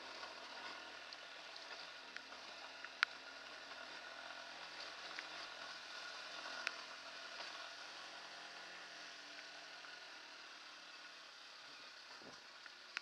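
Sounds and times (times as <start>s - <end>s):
motorcycle engine running: 0.0s - 13.0s
light ticks: 1.1s - 3.2s, 6.6s - 6.8s, 12.1s - 13.0s.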